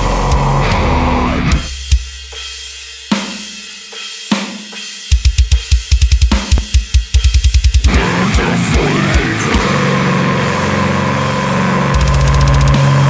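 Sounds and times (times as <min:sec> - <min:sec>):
heavy metal guitar and drums: 0:00.0 - 0:02.0, 0:05.2 - 0:13.0.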